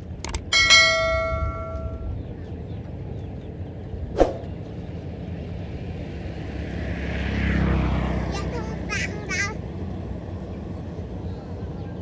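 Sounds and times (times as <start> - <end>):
bell ding: 0.4 - 2.2.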